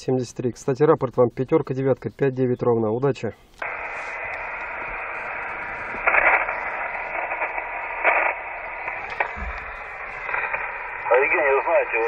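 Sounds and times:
radio receiver hiss and static: 3.5 - 12.0.

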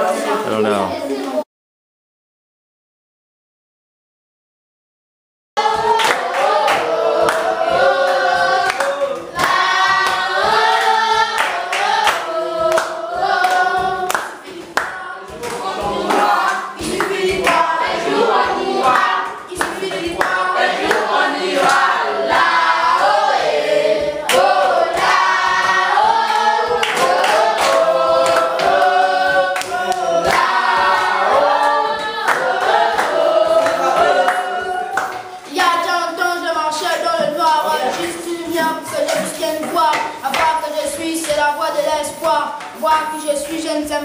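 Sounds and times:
children singing together: 0.0 - 1.4, 5.6 - 44.0
hand clapping: 5.8 - 18.2, 18.8 - 23.1, 24.2 - 28.9, 29.6 - 35.7, 37.2 - 43.8.

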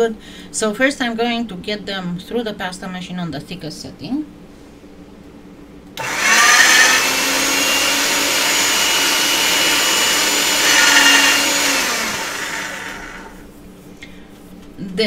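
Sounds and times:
pasta machine motor whirring: 6.0 - 13.5.

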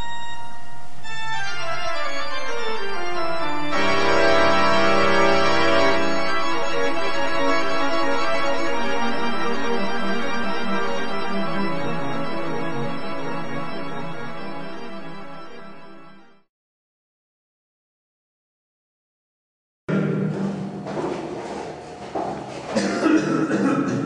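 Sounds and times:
organ music: 0.0 - 16.5.

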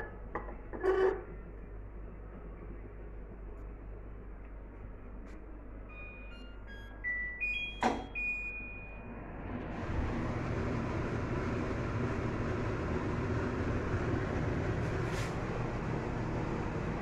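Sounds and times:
control panel beeping: 5.9 - 8.9
range hood fan running: 8.2 - 17.0.

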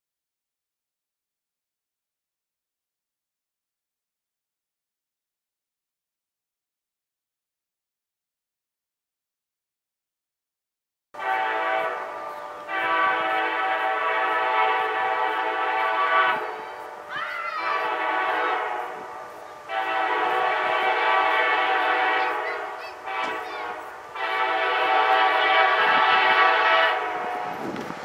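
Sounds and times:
locomotive air horn blasts: 11.2 - 27.8.

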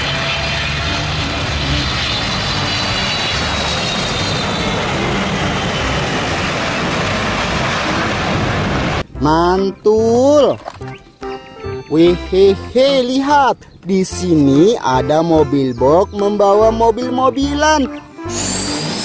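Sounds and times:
high jet whine falling in pitch: 0.0 - 9.1, 17.9 - 19.0
jet engine roar: 0.0 - 9.1, 18.1 - 19.0.

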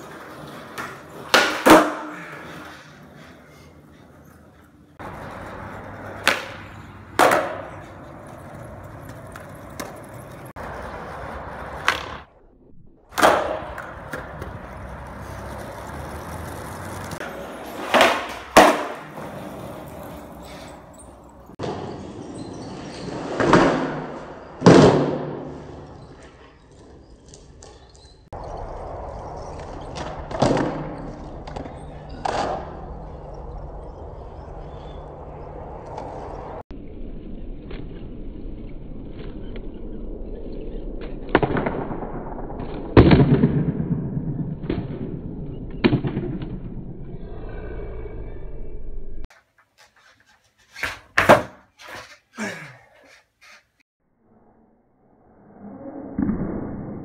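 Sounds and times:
skateboard slap: 0.0 - 2.9, 5.0 - 12.3, 13.1 - 20.2, 23.1 - 25.7, 29.6 - 32.9, 41.3 - 46.7, 49.3 - 52.2
skateboard wheels rolling on concrete: 0.0 - 12.4, 13.0 - 42.8, 49.1 - 53.8
skateboard landing clack: 0.7 - 2.4, 6.1 - 7.9, 11.8 - 12.3, 13.1 - 14.6, 16.6 - 19.7, 50.7 - 52.2.

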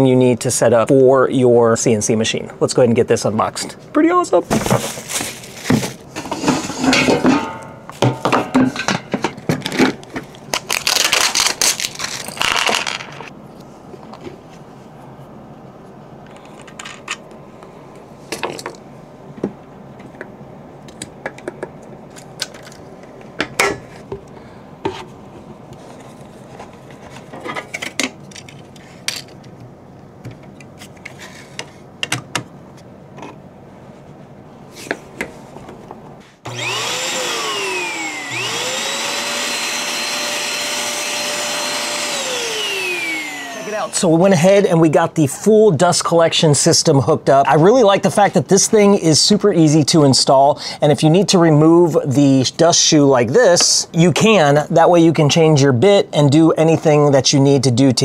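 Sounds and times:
plastic wrapping crinkling: 4.5 - 6.1, 10.3 - 12.5.

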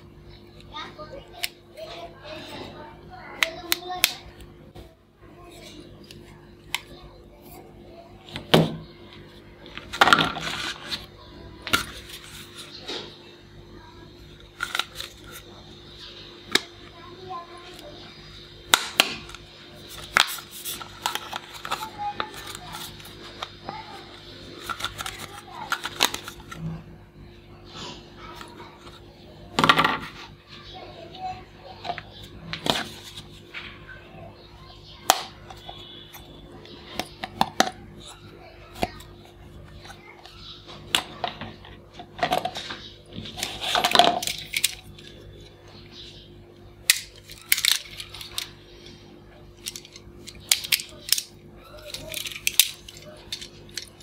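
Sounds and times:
plastic toys clacking: 18.7 - 26.6, 40.9 - 45.1, 46.8 - 49.0, 49.6 - 54.0
plastic toys clattering on table: 40.9 - 45.0, 49.6 - 54.0.

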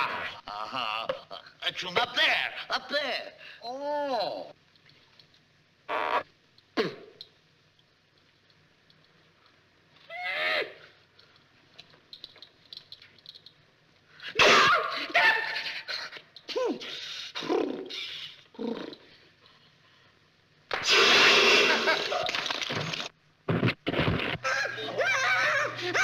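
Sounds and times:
man yelping comically: 14.4 - 16.8.

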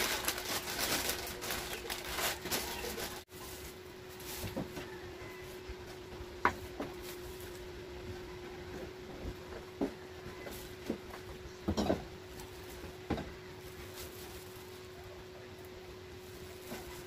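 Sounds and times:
plastic snack packets rustling: 0.0 - 4.5, 13.6 - 15.0
steady low hum: 3.1 - 17.0.

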